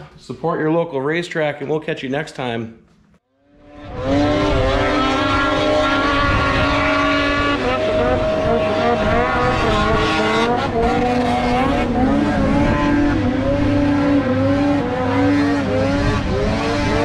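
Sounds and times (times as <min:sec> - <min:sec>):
racing boat engines revving: 0:03.4 - 0:17.0.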